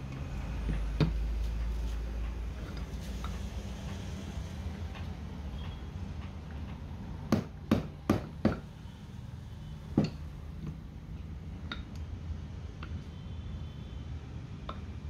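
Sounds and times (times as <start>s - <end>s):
sharp knocks on metal: 7.3s - 8.7s.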